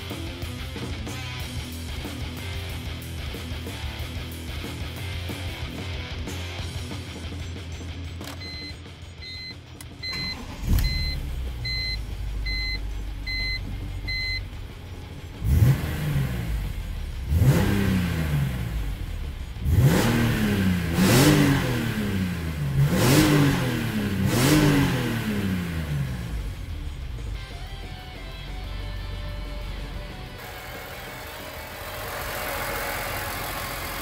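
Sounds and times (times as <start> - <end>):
car engine starting and idling: 6.7 - 34.0
car engine revving: 10.0 - 34.0.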